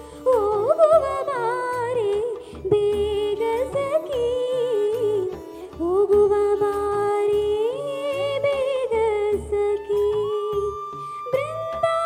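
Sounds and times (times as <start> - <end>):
girl singing into a microphone: 0.0 - 12.0
low rhythmic accompaniment: 0.0 - 12.0.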